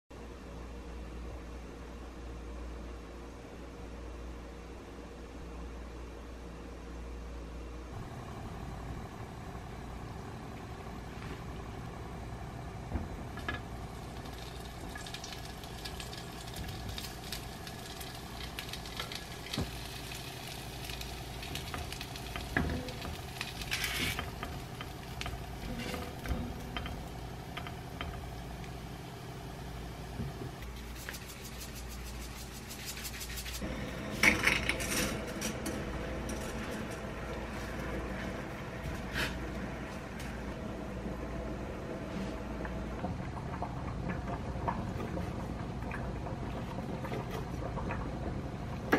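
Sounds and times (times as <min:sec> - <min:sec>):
low steady hum: 0:00.1 - 0:48.9
chicken sizzling in oil: 0:13.8 - 0:33.7.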